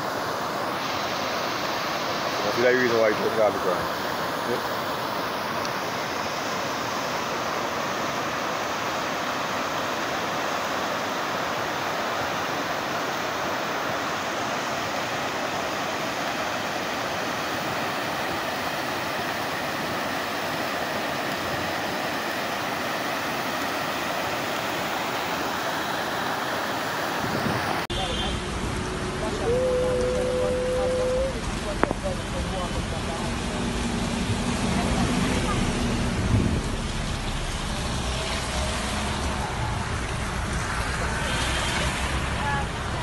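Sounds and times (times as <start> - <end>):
river water rushing: 0.0 - 43.0.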